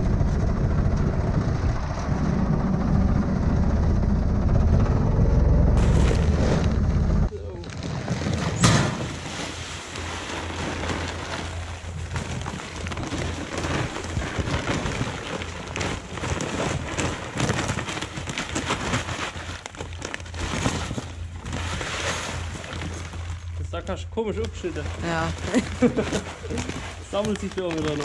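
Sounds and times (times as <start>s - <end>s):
grain pouring: 7.4s - 23.7s.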